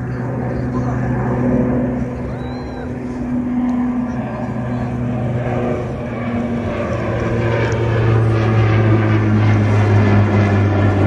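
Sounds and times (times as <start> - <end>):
turboprop airliner propeller drone: 0.0 - 11.0.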